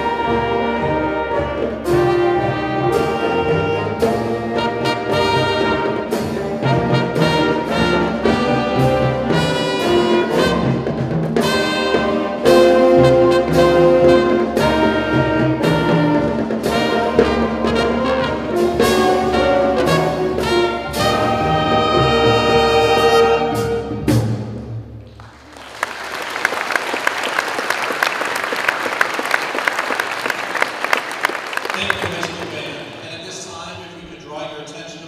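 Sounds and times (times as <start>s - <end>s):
concert band playing: 0.0s - 35.0s
audience applause: 25.1s - 33.0s.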